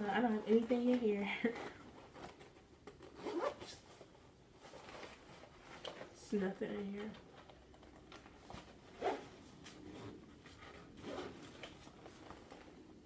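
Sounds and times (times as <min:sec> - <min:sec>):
bag rustling: 0:00.0 - 0:13.0
zipper being pulled: 0:03.0 - 0:03.9, 0:08.8 - 0:12.2.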